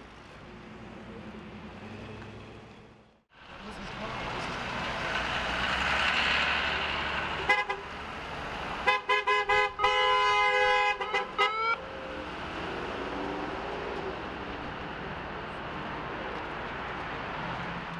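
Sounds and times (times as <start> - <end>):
hiss of passing traffic: 3.3 - 10.2
car horn honking: 7.4 - 7.9, 8.8 - 11.8.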